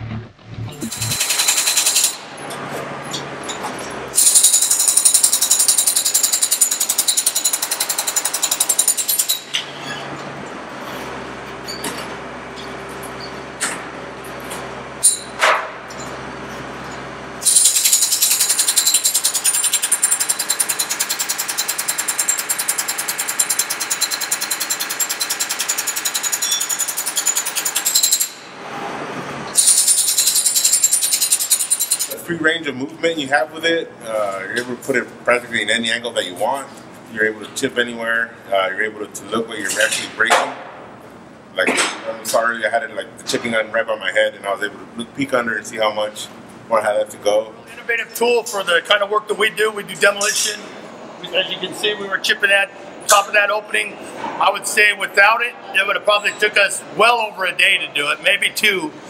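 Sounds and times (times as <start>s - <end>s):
steady hum: 0.0s - 4.2s.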